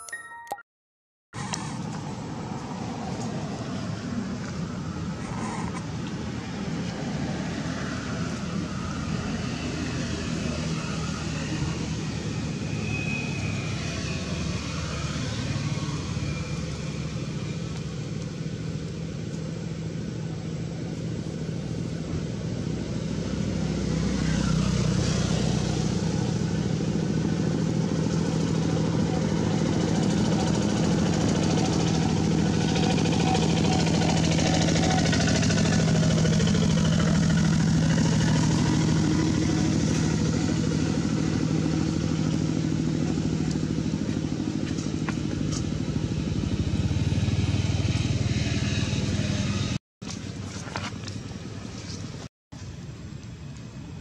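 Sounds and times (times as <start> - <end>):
motor engine humming: 24.3 - 54.0.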